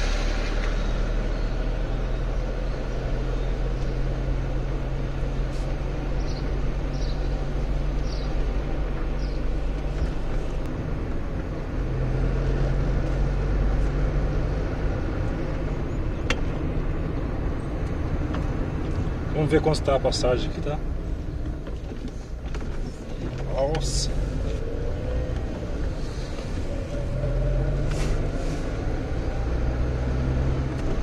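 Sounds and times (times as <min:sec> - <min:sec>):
car engine and road noise: 0:00.0 - 0:31.0.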